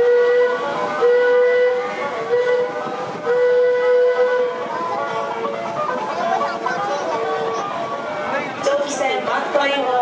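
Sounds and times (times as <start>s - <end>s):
riverboat whistle blasts: 0.0s - 6.0s.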